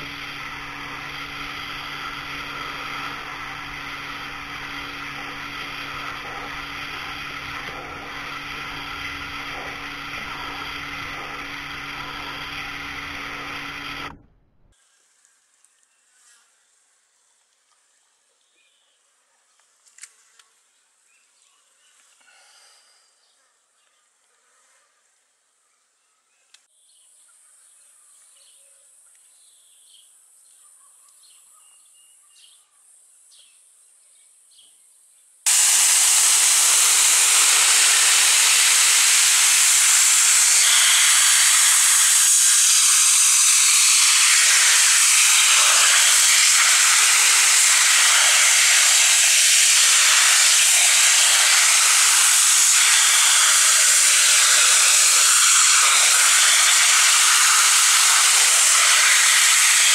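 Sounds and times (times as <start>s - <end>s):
pressure washer spraying: 0.0s - 14.2s, 35.5s - 59.9s
insect buzz: 14.8s - 17.2s.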